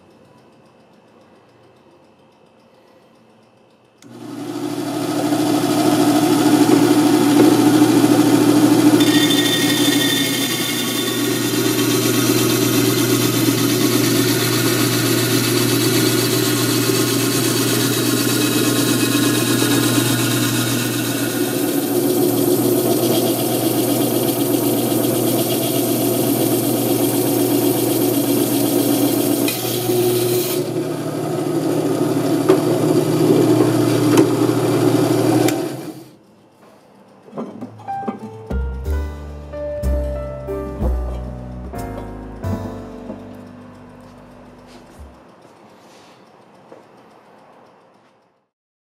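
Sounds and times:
steady motor hum: 3.9s - 36.3s
band saw blade grinding glass: 9.0s - 30.8s.

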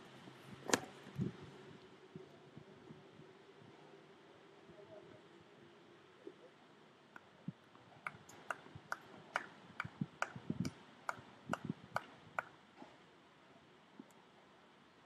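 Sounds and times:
scattered clapping: 8.0s - 12.6s.

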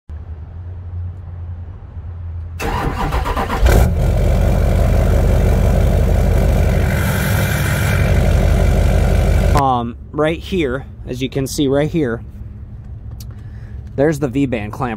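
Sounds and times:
diesel engine starting and idling: 2.6s - 9.6s.

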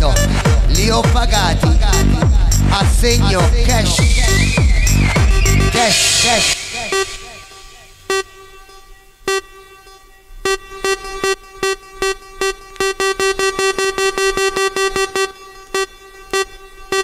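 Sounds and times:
repeated horn-like synth stab: 3.7s - 17.0s.

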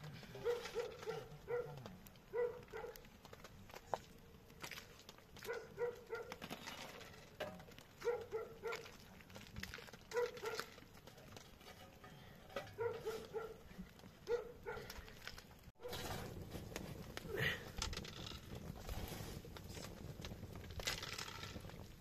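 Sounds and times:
dog barking: 0.4s - 3.0s, 5.4s - 6.4s, 8.0s - 8.9s, 10.1s - 10.7s, 12.7s - 13.6s, 14.3s - 15.0s.

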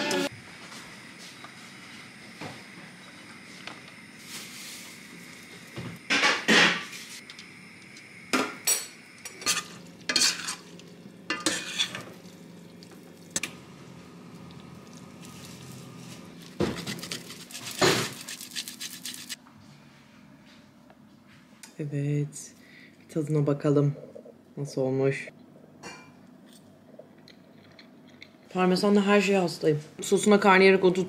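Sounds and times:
metal utensils clinking and scraping: 9.3s - 12.2s.

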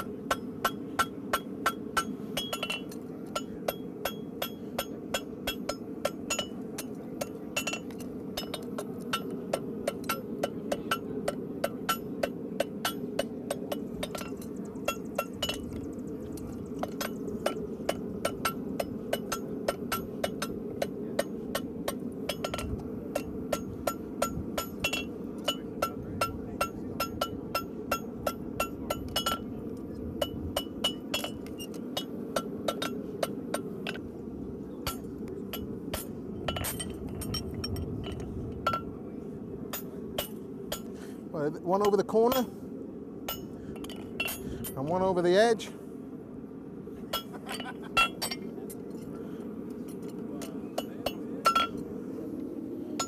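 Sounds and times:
hammer striking horseshoe on anvil: 0.0s - 15.8s, 16.8s - 29.5s, 30.2s - 34.0s, 43.3s - 43.6s, 50.4s - 51.8s
steady low rush: 0.0s - 53.0s.

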